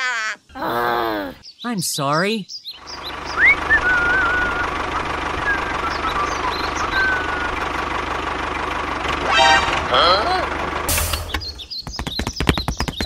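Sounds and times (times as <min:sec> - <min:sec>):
birds chirping: 0:00.4 - 0:13.0
tractor engine knocking: 0:02.8 - 0:13.0.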